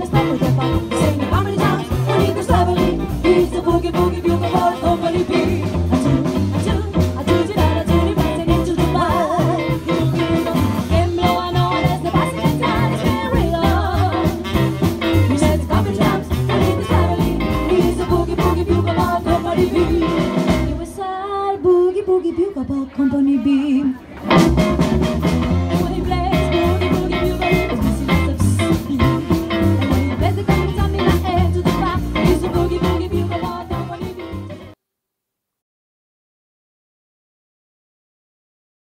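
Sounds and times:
upright bass: 0.0s - 20.9s, 24.2s - 34.8s
saxophone: 0.0s - 21.0s
women singing: 0.0s - 24.0s, 25.7s - 34.8s
drums: 0.0s - 34.8s.

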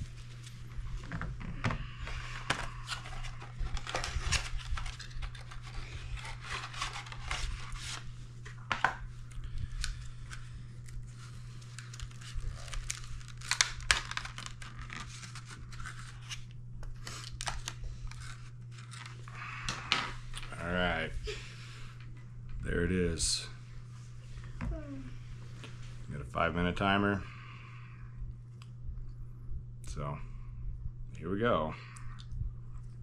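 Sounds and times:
steady low hum: 0.0s - 33.0s
plastic wrapper crinkling and tearing: 2.8s - 8.1s, 9.6s - 19.3s.

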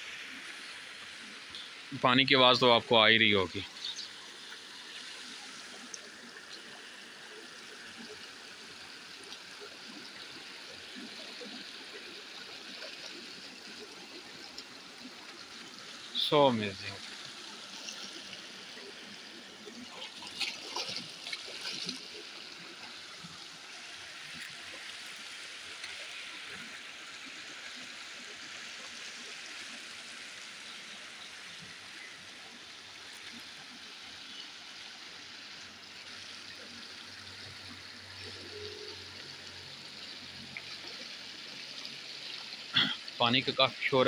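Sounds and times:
water rushing over weir: 0.0s - 34.2s
sharp splashing sounds: 20.0s - 22.2s.

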